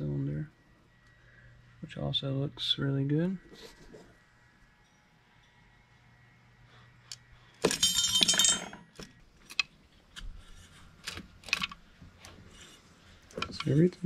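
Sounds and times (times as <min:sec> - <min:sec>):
metal chain rattling: 0:07.6 - 0:09.1.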